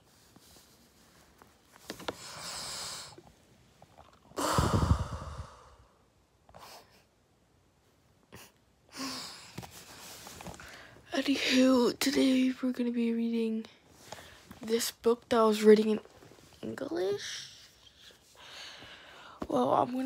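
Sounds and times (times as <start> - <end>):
person breathing close to microphone: 2.0 - 3.3, 4.3 - 7.1, 8.9 - 11.1, 17.4 - 19.4
forceful breath blasting the mic: 4.4 - 6.0.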